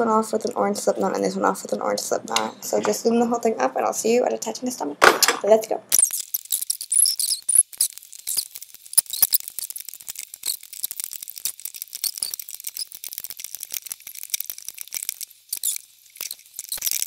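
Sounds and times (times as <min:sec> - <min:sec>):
rubber bands clicking and snapping: 0:05.9 - 0:17.0.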